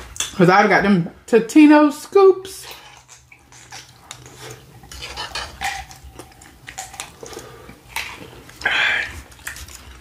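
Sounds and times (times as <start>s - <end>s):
chewing chips: 2.7s - 10.0s.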